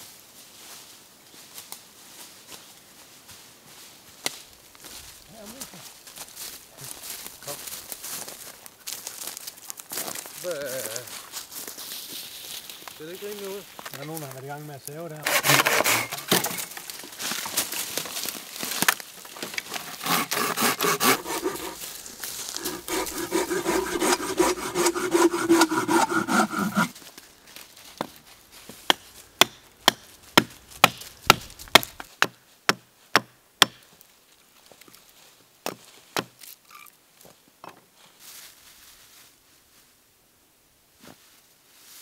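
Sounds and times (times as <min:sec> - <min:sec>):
hand saw cutting wood: 0:15.2 - 0:16.8, 0:19.5 - 0:27.0.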